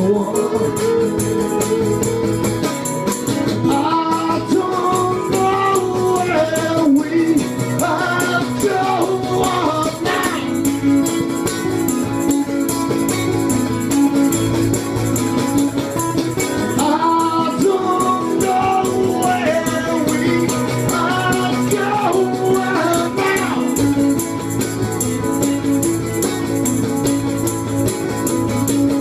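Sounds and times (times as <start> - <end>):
man singing: 0.0 - 2.6, 3.6 - 10.8, 16.8 - 23.9
acoustic guitars strummed: 0.0 - 29.0.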